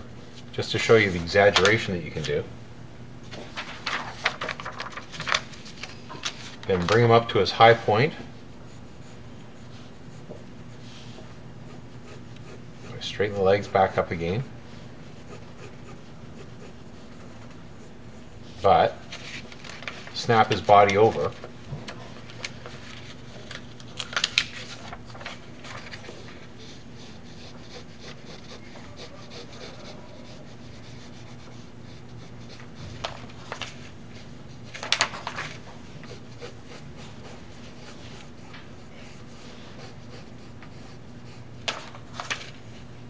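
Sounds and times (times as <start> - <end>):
steady low hum: 0.0 - 43.0
paper rustling: 3.3 - 7.2, 19.0 - 26.5, 32.5 - 35.8, 41.6 - 42.9
pencil scratching on paper: 8.6 - 18.9, 26.6 - 33.2, 35.9 - 41.5.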